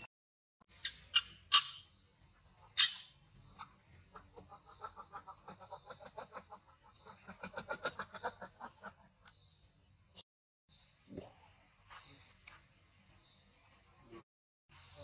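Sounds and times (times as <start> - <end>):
animal clucking calls: 0.8 - 1.8, 2.7 - 3.0, 3.6 - 9.3.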